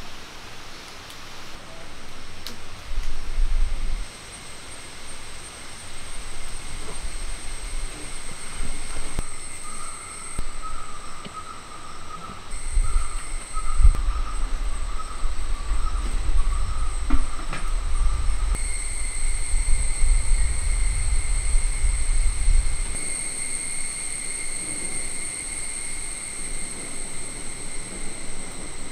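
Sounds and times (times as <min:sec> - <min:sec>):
insects droning: 0:00.0 - 0:28.9
low rumble: 0:12.5 - 0:23.2.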